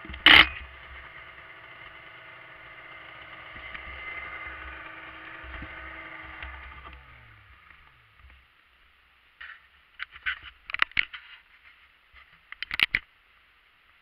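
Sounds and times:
snowmobile engine idling: 0.0 - 8.5.

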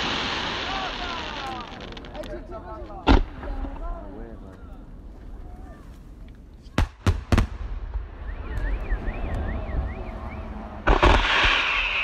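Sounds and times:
rush of firework bursts: 0.0 - 2.2, 10.8 - 12.0
warbling firework whistle: 8.1 - 12.0
firework shell bursts: 10.9 - 12.0.

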